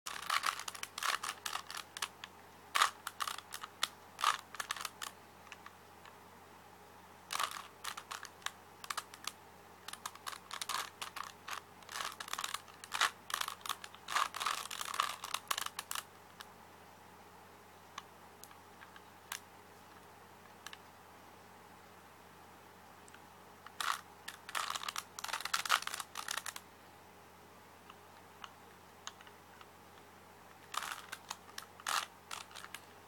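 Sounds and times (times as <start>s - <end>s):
rubik's cube clicking: 0.1s - 5.7s, 7.3s - 16.1s, 23.7s - 26.6s, 30.6s - 32.9s.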